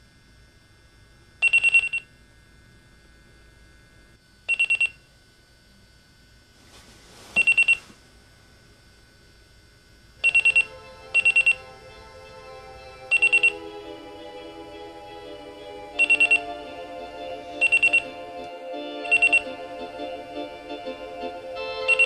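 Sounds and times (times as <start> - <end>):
digital alarm clock beeping: 1.4 - 2.0, 4.5 - 5.0, 7.4 - 7.8, 10.2 - 11.6, 13.1 - 13.6, 16.0 - 16.5, 17.6 - 18.1, 19.0 - 19.5
soft music: 10.2 - 22.0.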